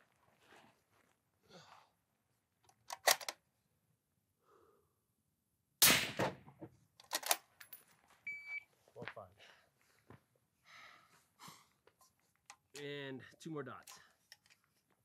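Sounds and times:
rifle bolt clicking: 2.9 - 3.4
suppressed rifle shot: 5.8 - 6.4.

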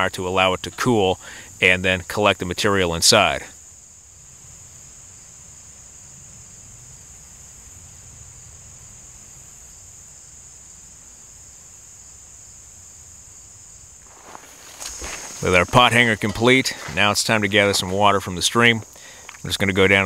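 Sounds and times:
insects chirring: 0.0 - 20.0.

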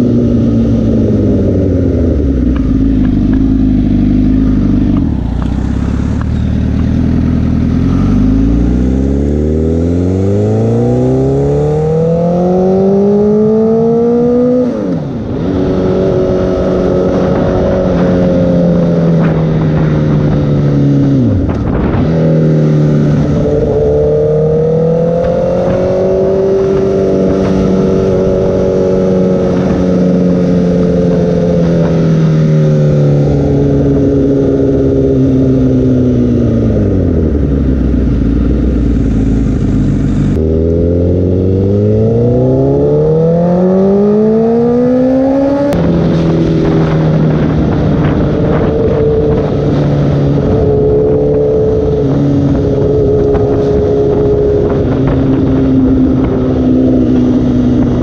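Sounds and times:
motorcycle engine: 0.0 - 58.0.

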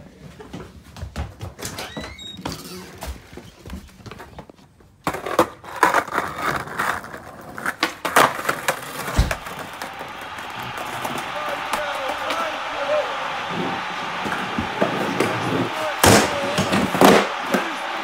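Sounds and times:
skateboard wheels rolling on pavers: 0.1 - 11.2
footsteps and knocks: 0.3 - 2.2
skateboard clacking and slapping: 5.0 - 12.5, 13.4 - 18.0
heavy thud: 9.1 - 9.5.

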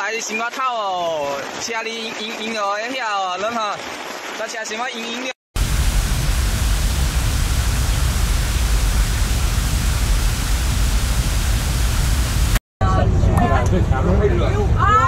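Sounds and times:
loud steady rushing noise: 5.6 - 12.6.

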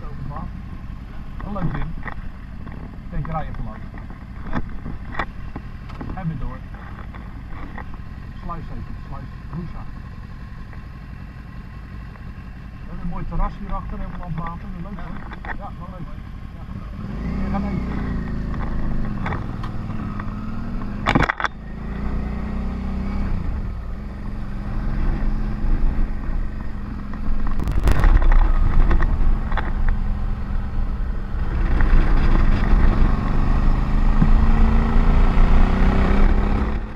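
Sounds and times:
motorcycle engine running: 0.0 - 36.9
wind rushing over microphone: 27.2 - 30.1.

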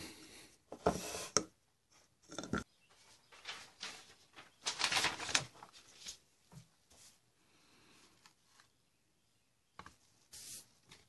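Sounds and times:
paper and card rustling: 3.0 - 6.2.

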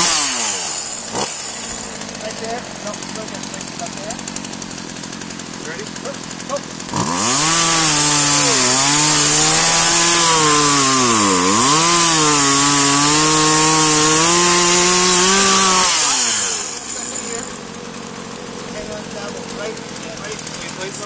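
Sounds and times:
chainsaw cutting log: 0.0 - 21.0.

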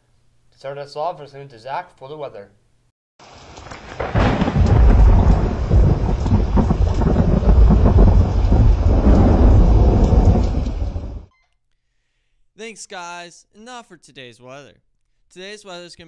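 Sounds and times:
steady rain: 3.2 - 11.3
loud rolling thunder: 3.6 - 11.3.

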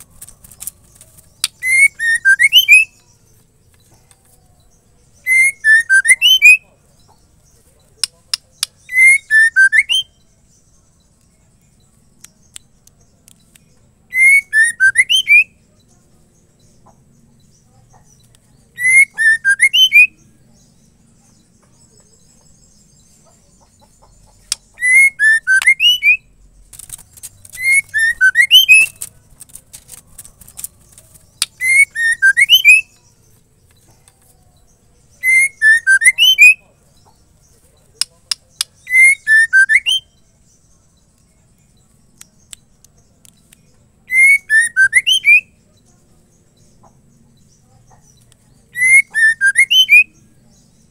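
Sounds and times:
bird whistled call: 1.4 - 3.0, 5.3 - 6.6, 8.8 - 10.2, 14.1 - 15.6, 18.8 - 20.1, 24.8 - 26.3, 27.6 - 29.0, 31.6 - 32.9, 35.2 - 36.6, 38.8 - 40.1, 44.1 - 45.5, 48.7 - 50.2.

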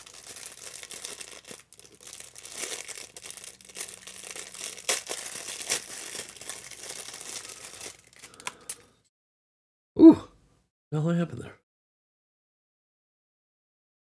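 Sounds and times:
plastic bag crinkling: 0.0 - 8.9.

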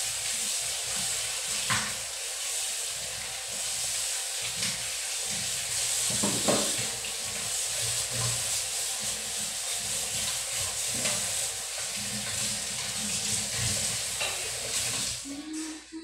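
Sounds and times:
faucet running into a sink: 0.0 - 15.7
dishes rubbed by hand: 3.5 - 16.0
dishware knocking: 6.2 - 6.8.

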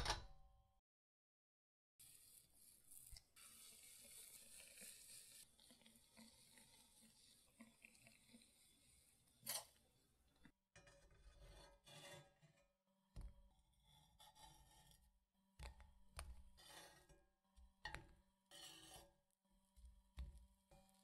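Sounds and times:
metal spatula scraping frying pan: 2.3 - 5.5, 6.7 - 9.8, 10.8 - 12.7, 13.8 - 15.1, 16.6 - 17.2, 18.5 - 19.2.

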